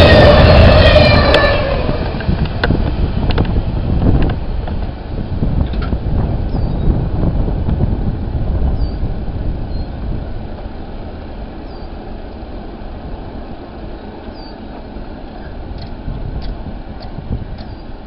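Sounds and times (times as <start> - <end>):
freight train rumble: 0.0 - 18.0
faint bird chirps: 14.3 - 14.6.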